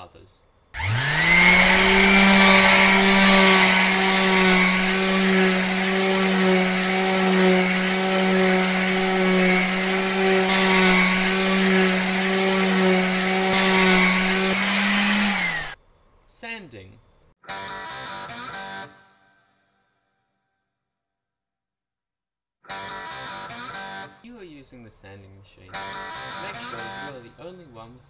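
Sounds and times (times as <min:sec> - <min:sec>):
disc sander motor whine: 0:00.8 - 0:15.8
wood rasping on sanding disc: 0:00.8 - 0:15.8.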